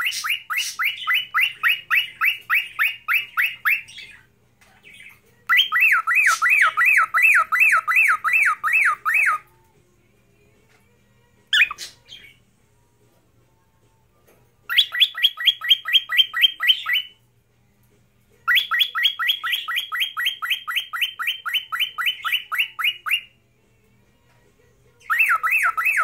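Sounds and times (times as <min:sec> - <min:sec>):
bird whistling: 0:00.0 - 0:04.2, 0:05.5 - 0:09.4, 0:11.6 - 0:12.4, 0:14.7 - 0:17.2, 0:18.5 - 0:23.3, 0:25.0 - 0:26.0
bird chirp: 0:00.0 - 0:09.4, 0:11.6 - 0:12.5, 0:14.6 - 0:17.2, 0:18.4 - 0:23.4, 0:25.0 - 0:26.0.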